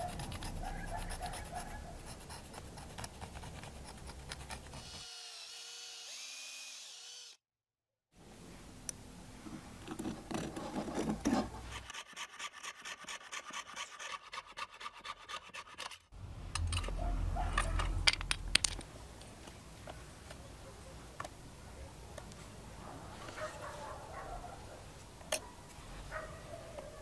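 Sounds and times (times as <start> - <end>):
saw blade scraping: 0.0 - 7.2, 9.9 - 18.0
fret saw cutting wood: 0.0 - 7.4, 10.0 - 17.0.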